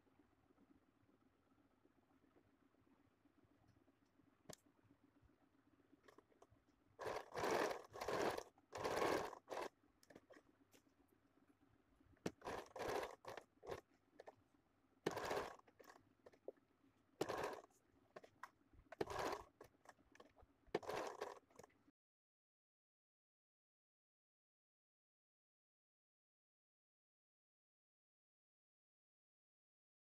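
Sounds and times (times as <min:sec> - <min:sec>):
sewing machine stitching: 0:06.0 - 0:10.4, 0:12.2 - 0:14.4, 0:15.0 - 0:16.5, 0:17.2 - 0:21.7.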